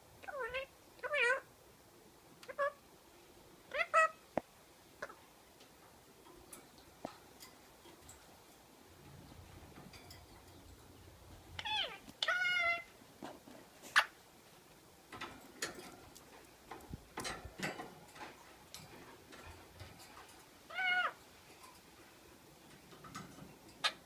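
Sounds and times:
parakeet mimicking a meow: 0:00.2 - 0:01.5, 0:03.7 - 0:04.2, 0:11.6 - 0:12.9, 0:20.7 - 0:21.2.

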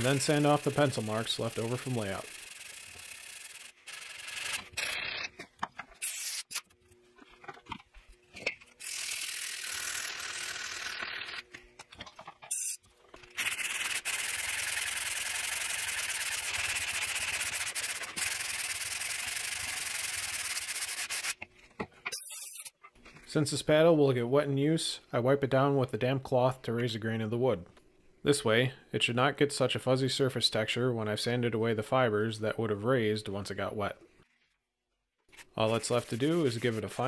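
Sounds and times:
sandpaper sanding wood: 0:00.0 - 0:04.6, 0:13.4 - 0:21.4, 0:35.6 - 0:37.0.

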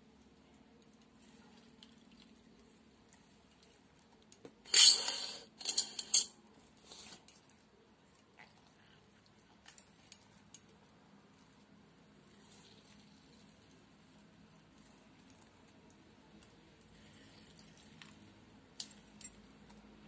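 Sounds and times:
steel bowls scraping and clattering: 0:04.7 - 0:06.4.

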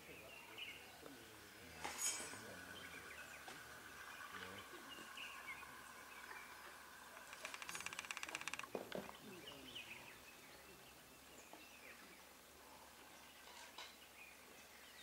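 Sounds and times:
thin steady tone: 0:00.7 - 0:07.3.

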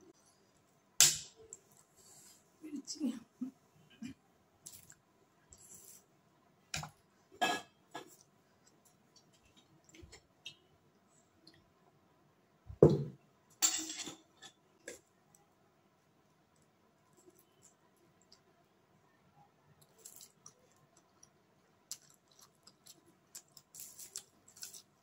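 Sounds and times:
heavy knock with dull thud: 0:12.8 - 0:13.2.

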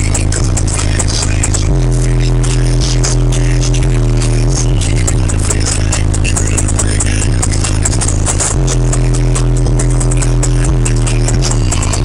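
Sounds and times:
loud rap music with heavy bass: 0:00.0 - 0:12.0.

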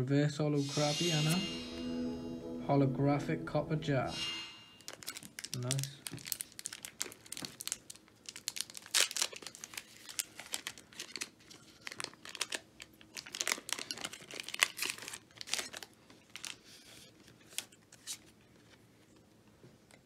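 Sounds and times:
foil wrapper crinkling and tearing: 0:04.9 - 0:18.4.

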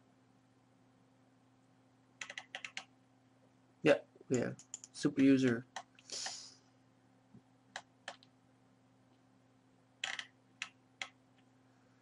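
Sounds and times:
low steady hum: 0:00.0 - 0:12.0
mouse and keyboard clicks: 0:02.2 - 0:02.9, 0:07.8 - 0:08.3, 0:10.0 - 0:11.2.

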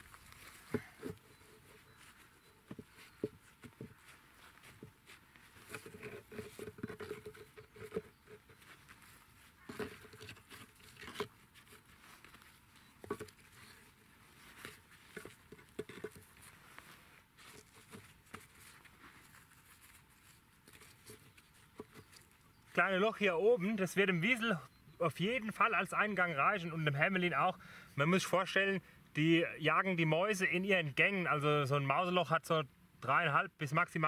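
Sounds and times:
stones knocking and scraping: 0:00.0 - 0:01.7, 0:02.6 - 0:22.8
rustling in grass: 0:00.0 - 0:23.0.

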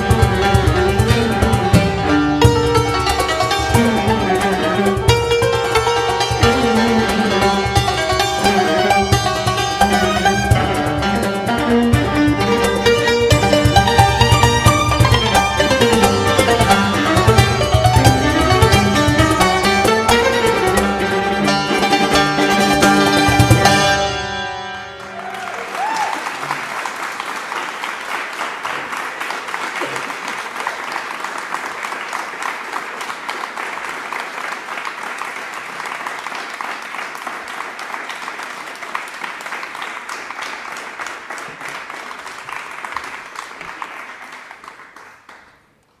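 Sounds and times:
santur and string quartet chord: 0:00.0 - 0:25.4
audience applause: 0:25.0 - 0:46.0.

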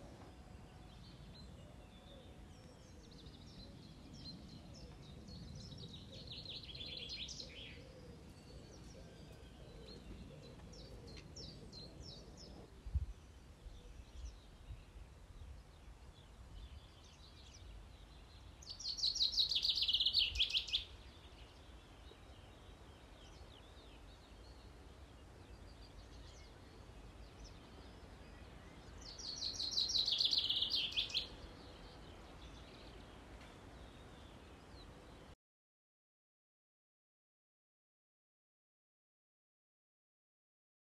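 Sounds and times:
low outdoor background noise: 0:00.0 - 0:35.4
bird singing rapid trill: 0:16.8 - 0:35.3.

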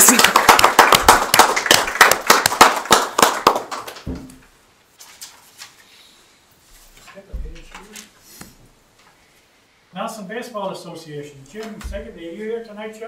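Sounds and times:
people applauding: 0:00.0 - 0:04.1.

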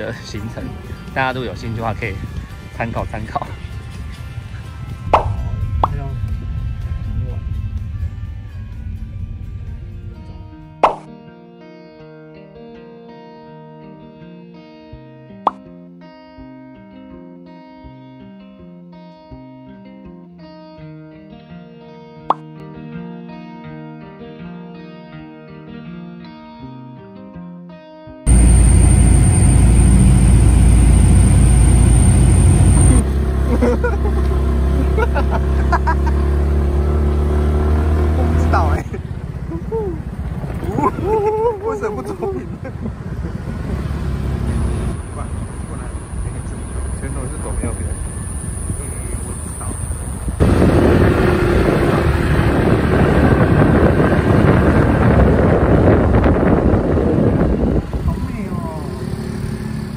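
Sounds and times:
low vehicle-like rumble: 0:03.5 - 0:10.9, 0:28.3 - 0:36.2, 0:38.0 - 0:59.9
faint high whine: 0:28.3 - 0:33.0, 0:45.0 - 0:50.3
wind rushing on microphone: 0:38.4 - 0:58.9.

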